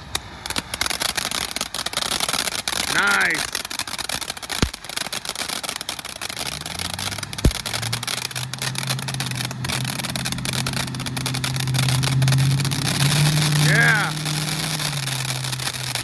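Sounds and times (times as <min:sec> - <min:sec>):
firework fountain hissing and crackling: 0:00.0 - 0:16.0
sharp pop: 0:04.6 - 0:04.9, 0:07.4 - 0:08.1
low engine hum: 0:05.8 - 0:16.0.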